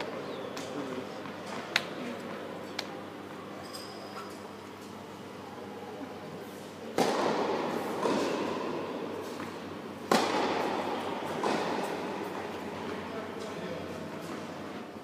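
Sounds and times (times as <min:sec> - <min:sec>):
tennis ball racket hits echoing: 0:06.9 - 0:13.0.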